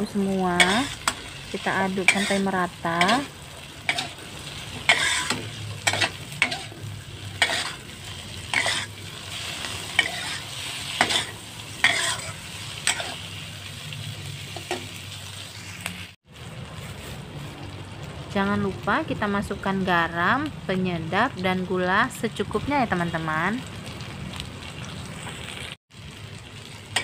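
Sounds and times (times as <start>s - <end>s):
food sizzling in a wok: 0.0s - 27.0s
metal spatula scraping a wok: 0.5s - 13.4s.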